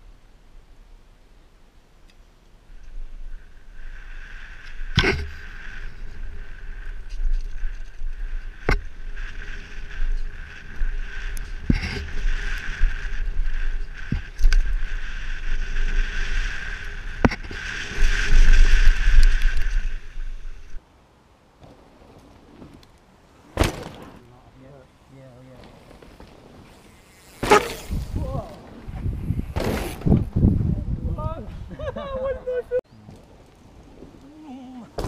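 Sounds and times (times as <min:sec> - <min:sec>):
wind buffeting microphone: 0:27.8 - 0:32.6.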